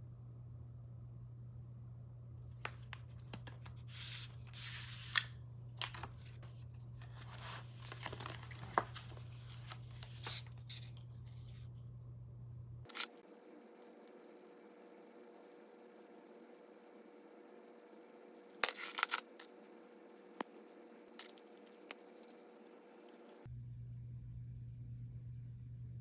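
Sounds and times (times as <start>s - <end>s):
low steady hum: 0.0s - 26.0s
cardboard packaging scraping and rustling: 2.8s - 11.1s.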